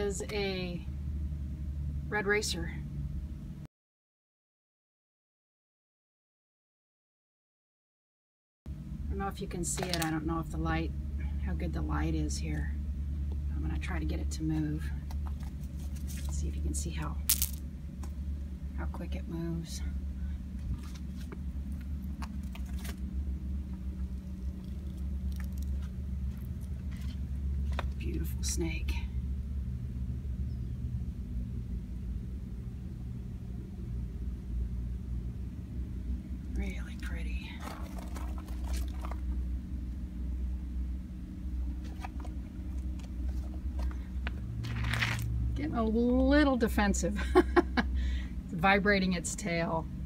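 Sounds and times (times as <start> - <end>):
low rumble with faint hum: 0.0 - 3.7, 8.7 - 50.0
gravel crunching: 15.0 - 18.2, 20.5 - 28.4, 36.6 - 39.5, 41.7 - 45.4.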